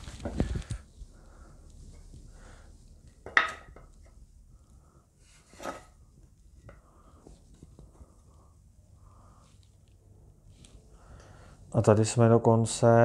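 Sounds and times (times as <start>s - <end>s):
faint rubbing and rustling: 0.0s - 3.2s.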